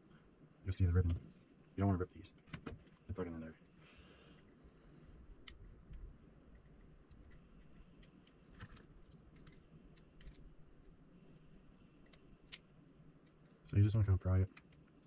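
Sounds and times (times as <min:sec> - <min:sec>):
low steady hum: 0:00.0 - 0:15.0
small plastic clicks: 0:05.4 - 0:10.9, 0:12.0 - 0:13.8, 0:14.5 - 0:15.0.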